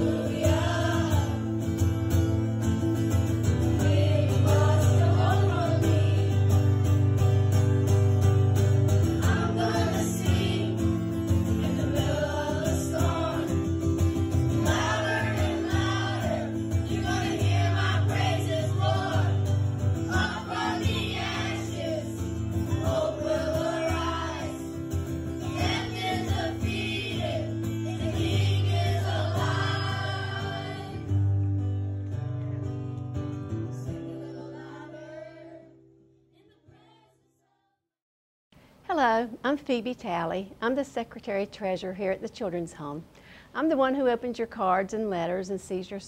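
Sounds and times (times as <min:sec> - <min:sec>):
gospel song with voices singing: 0:00.0 - 0:02.4, 0:03.4 - 0:07.0, 0:09.0 - 0:31.3, 0:33.8 - 0:35.8.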